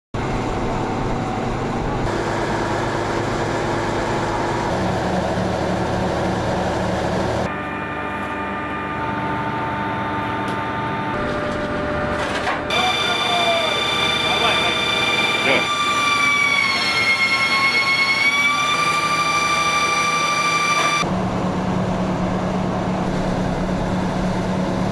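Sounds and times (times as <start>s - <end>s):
steady whine: 0.2s - 24.9s
low engine rumble: 21.0s - 24.9s.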